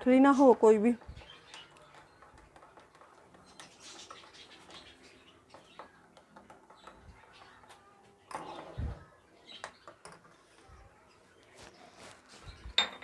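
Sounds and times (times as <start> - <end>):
spoon clinking in a mug: 12.8 - 13.0.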